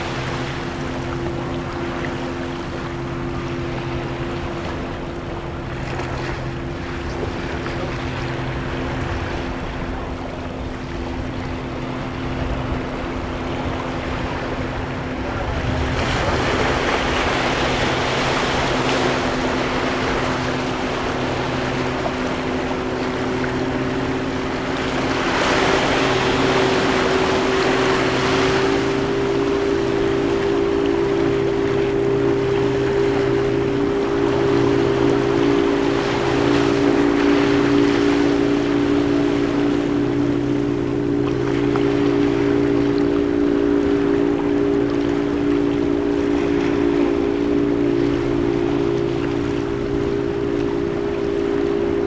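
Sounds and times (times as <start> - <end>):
steady low hum: 0.0 - 52.0.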